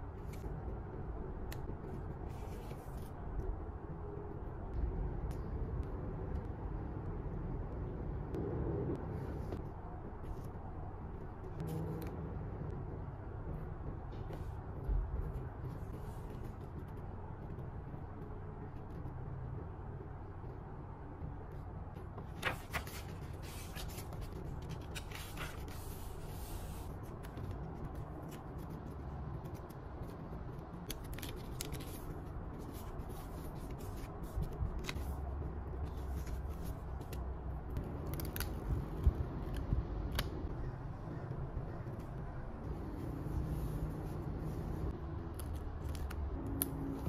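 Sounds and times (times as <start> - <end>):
paper rustling: 22.2 - 28.7, 30.8 - 37.2.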